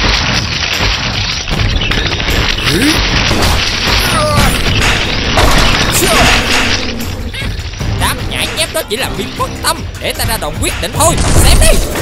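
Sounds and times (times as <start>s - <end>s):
booming crashing impacts: 0.0s - 8.8s
mechanical clanking: 0.0s - 9.4s
action background music: 0.0s - 12.0s.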